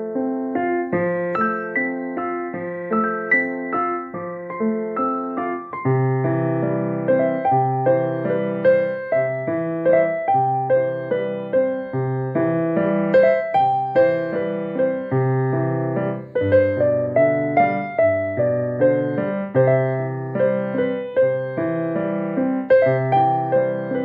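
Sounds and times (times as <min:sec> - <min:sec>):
piano music: 0:00.0 - 0:24.0.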